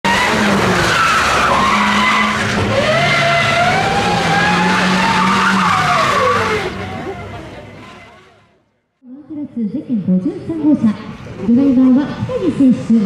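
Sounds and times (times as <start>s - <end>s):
tyres squealing and skidding: 0.0s - 8.6s
rally car engine under load: 0.0s - 8.8s.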